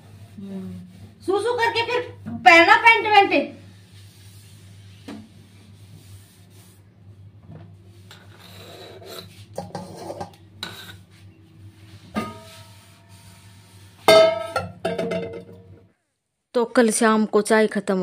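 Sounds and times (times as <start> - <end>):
rubbing and rustling handling noises: 0.0 - 14.2.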